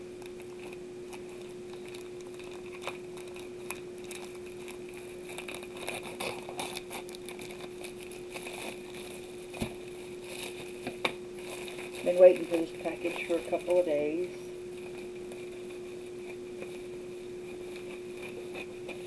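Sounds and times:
low steady hum: 0.0 - 19.0
plastic crinkling: 0.3 - 19.0.

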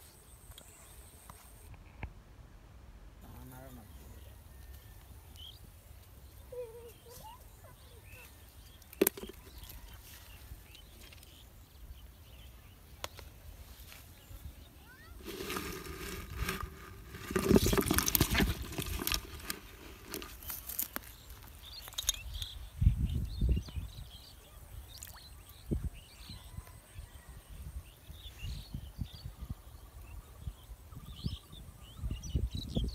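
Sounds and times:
birds chirping: 3.2 - 32.9
rustling crackling clatter: 15.2 - 22.1.

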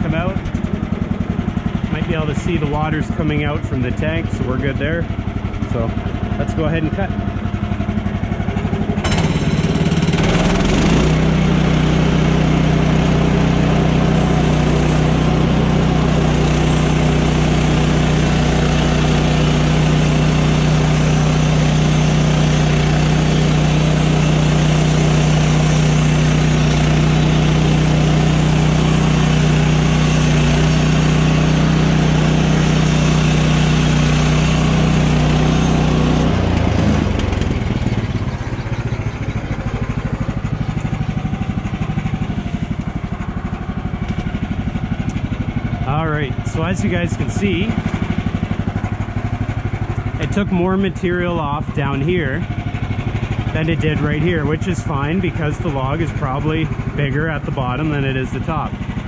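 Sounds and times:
band sawmill engine running: 0.0 - 59.0
saw blade cutting log: 9.0 - 37.7.

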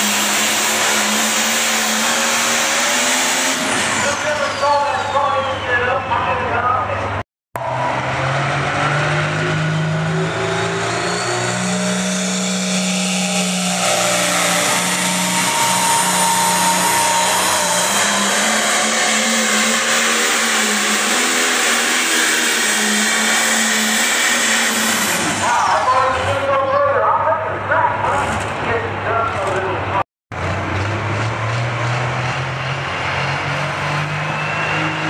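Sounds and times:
diesel tractor engine at full power: 0.0 - 35.0.

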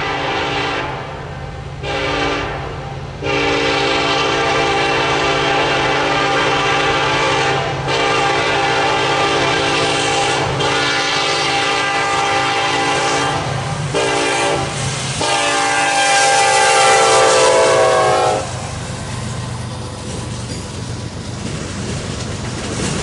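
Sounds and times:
locomotive air horn blasts: 0.0 - 1.2, 1.8 - 18.6
freight cars clacking on rails: 18.4 - 23.0.

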